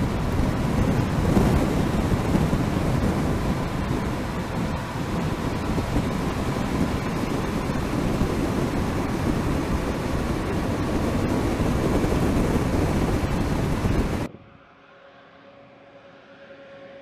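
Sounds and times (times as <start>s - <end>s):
wind and tyre noise: 0.0s - 17.0s.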